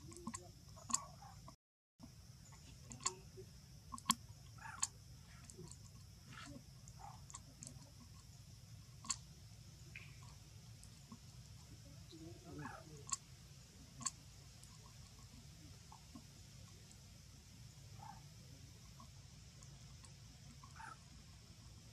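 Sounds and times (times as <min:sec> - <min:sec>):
sharp clicks and ticks: 0:00.0 - 0:03.3, 0:03.9 - 0:08.3, 0:09.0 - 0:09.3, 0:13.0 - 0:13.2, 0:18.8 - 0:21.9
steady high hiss: 0:02.0 - 0:21.9.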